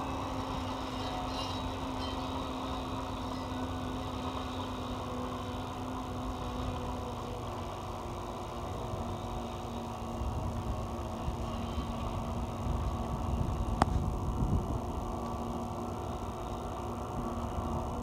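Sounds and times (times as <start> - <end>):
logging machinery engine drone: 0.0 - 18.0.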